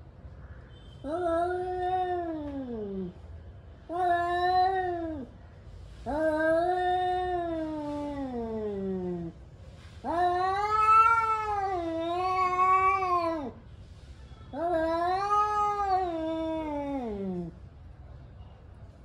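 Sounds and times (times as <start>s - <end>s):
cat growling: 1.1s - 3.2s, 6.1s - 9.4s, 10.0s - 13.6s, 14.6s - 17.6s
cats yowling: 3.9s - 5.3s, 6.1s - 9.3s, 10.0s - 13.6s, 14.6s - 17.6s.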